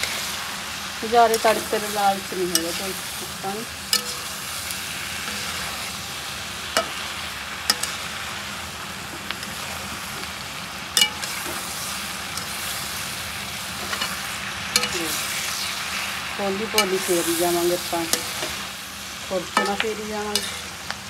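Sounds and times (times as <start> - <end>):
vegetables sizzling: 0.0 - 21.0
metal spatula scraping: 3.9 - 4.4, 5.2 - 6.0, 13.8 - 14.2, 14.8 - 15.8, 19.6 - 20.8.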